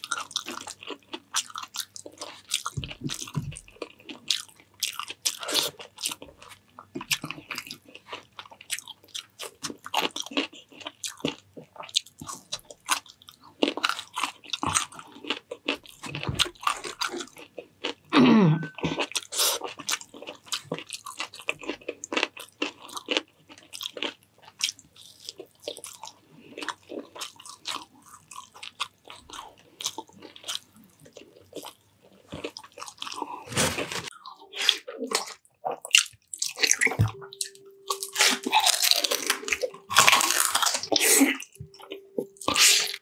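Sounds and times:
person chewing crunchy food: 0:00.0 - 0:43.0.

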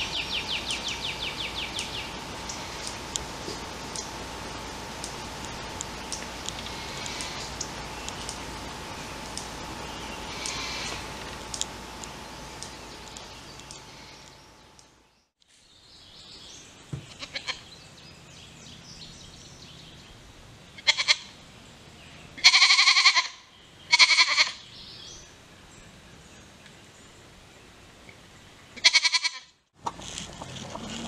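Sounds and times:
bird chirps: 0:00.0 - 0:20.2
baby goat bleating: 0:20.8 - 0:21.3, 0:22.4 - 0:24.6, 0:28.8 - 0:29.5.

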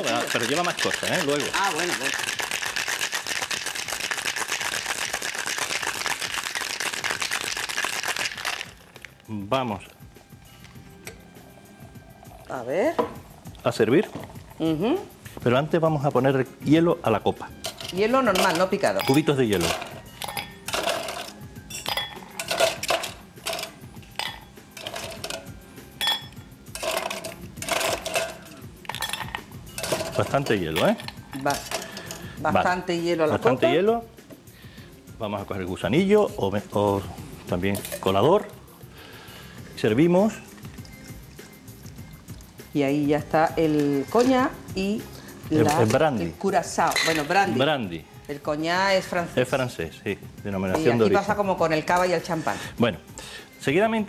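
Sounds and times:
ice rattling in cocktail shaker: 0:00.0 - 0:09.2, 0:17.6 - 0:33.8, 0:37.6 - 0:38.6, 0:45.5 - 0:47.6.

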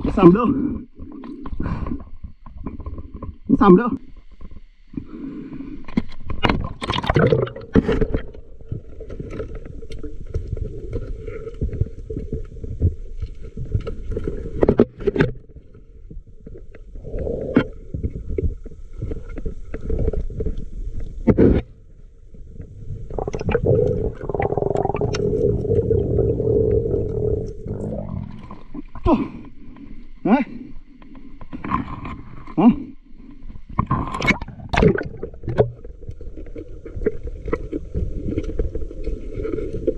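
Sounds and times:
steady underwater hum: 0:00.0 - 0:39.9
water rumbling and bubbling: 0:00.0 - 0:39.9
sharp crackles and knocks: 0:01.0 - 0:03.5, 0:05.8 - 0:25.9, 0:33.3 - 0:39.9.

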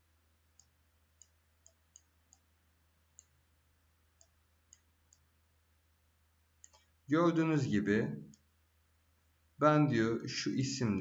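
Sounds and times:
faint computer mouse clicks: 0:00.6 - 0:02.5, 0:04.2 - 0:05.3, 0:06.6 - 0:06.9.

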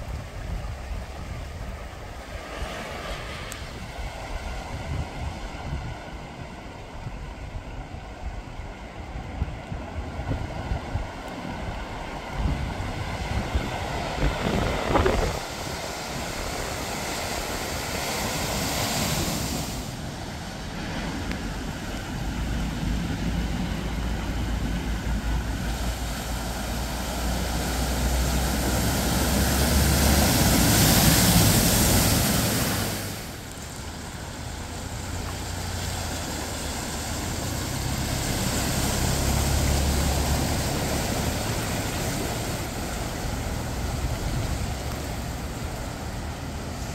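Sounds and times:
wind buffeting microphone: 0:00.0 - 0:36.3
water splashing from wheels: 0:00.0 - 0:46.9
car engines running: 0:19.7 - 0:46.9.

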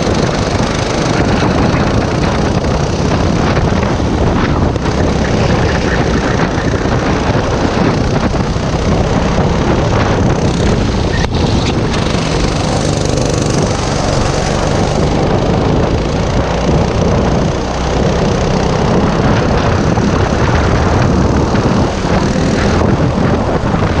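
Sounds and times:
go-kart engine running hard: 0:00.0 - 0:24.0
wind rushing over microphone: 0:00.0 - 0:24.0.

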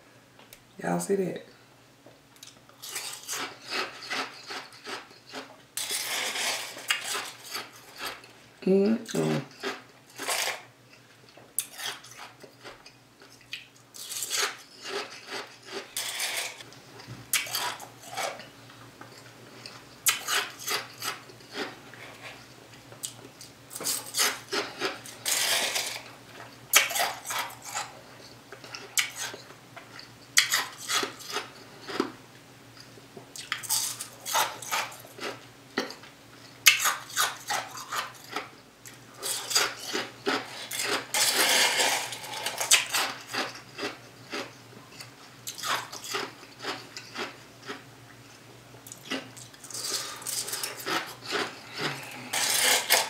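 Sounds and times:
person crunching ice: 0:02.8 - 0:08.1, 0:49.7 - 0:53.0.

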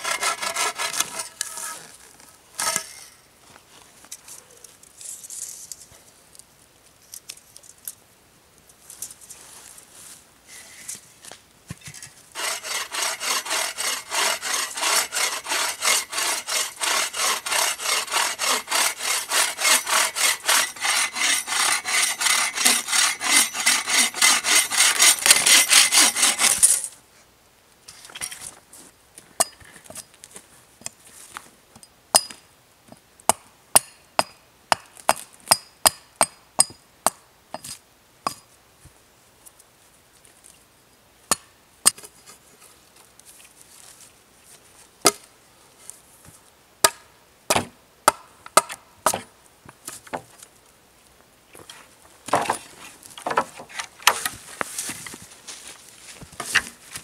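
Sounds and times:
hand saw cutting wood: 0:00.0 - 0:01.8, 0:02.6 - 0:02.9, 0:12.4 - 0:26.9.

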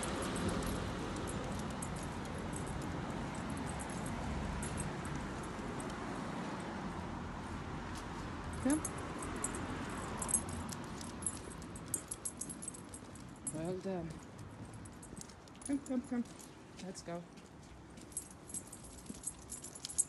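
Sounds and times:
dog collar tags jingling: 0:00.0 - 0:06.0, 0:08.5 - 0:16.6, 0:18.0 - 0:20.0
outdoor background noise: 0:00.0 - 0:20.0.

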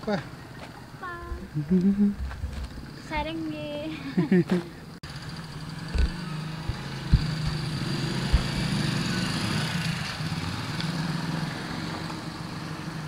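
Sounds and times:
dull low bumps: 0:01.3 - 0:03.6, 0:05.8 - 0:09.2.

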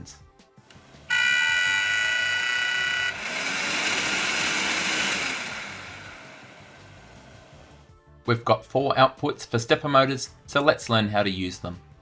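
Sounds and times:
blower fan whining: 0:00.7 - 0:07.8
fan spinning down: 0:00.8 - 0:07.8
fan rushing air: 0:03.1 - 0:07.8.

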